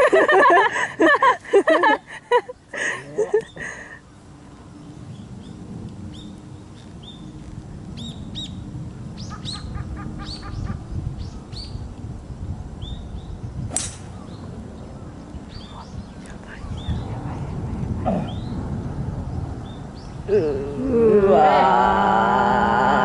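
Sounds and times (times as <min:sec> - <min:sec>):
low outdoor rumble: 0:00.0 - 0:23.0
birds chirping: 0:02.3 - 0:11.9, 0:12.8 - 0:20.4
golf club striking ball: 0:13.7 - 0:14.2.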